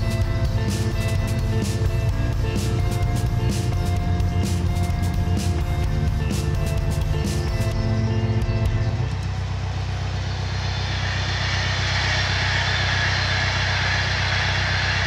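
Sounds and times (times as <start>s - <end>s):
background music: 0.0s - 15.0s
rushing noise: 9.9s - 15.0s.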